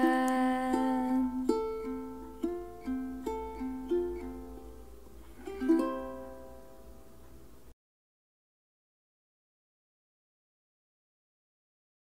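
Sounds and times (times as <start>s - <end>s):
plucked string melody: 0.0s - 7.6s.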